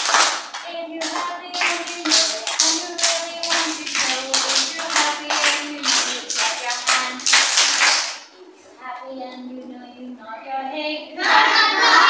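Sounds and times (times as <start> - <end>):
children clapping in rhythm: 0.0 - 8.3
people singing: 1.0 - 7.8, 11.1 - 12.0.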